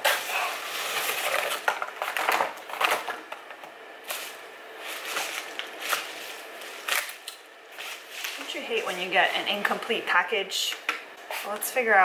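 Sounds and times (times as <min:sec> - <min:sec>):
paper mailer crinkling and crackling: 0:00.0 - 0:09.8.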